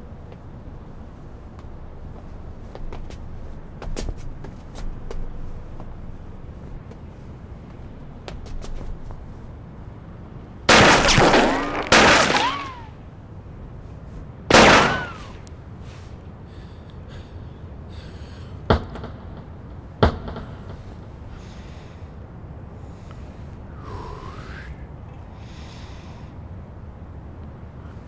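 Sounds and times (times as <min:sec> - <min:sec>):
sharp gunshot cracks: 0:10.7 - 0:12.8, 0:14.5 - 0:15.4
pistol shots with whine: 0:10.7 - 0:12.9, 0:14.5 - 0:15.4.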